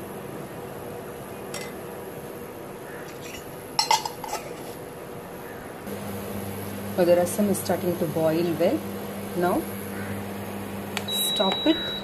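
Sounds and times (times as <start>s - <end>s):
metal lid clinking: 1.6s - 1.8s, 3.1s - 4.7s.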